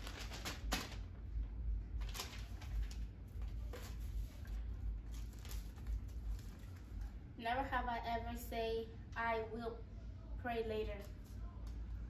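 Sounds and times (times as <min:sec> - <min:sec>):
paper cards rustling and tapping: 0:00.0 - 0:01.0, 0:02.0 - 0:07.1
low room hum: 0:00.0 - 0:12.0.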